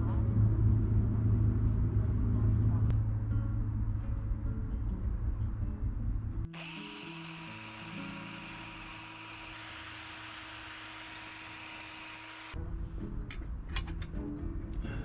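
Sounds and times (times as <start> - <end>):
drill spinning wire brush: 6.6 - 12.6
background music: 12.6 - 15.0.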